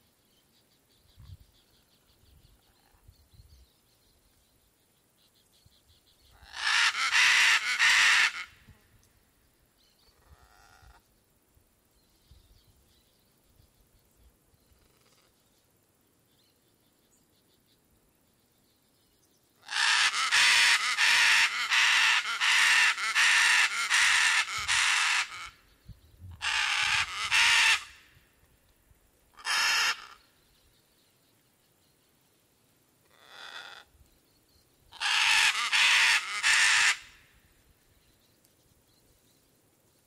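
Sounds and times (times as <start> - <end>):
macaws squawking: 6.4 - 8.5, 19.7 - 25.5, 26.4 - 28.0, 29.4 - 30.2, 35.0 - 37.1.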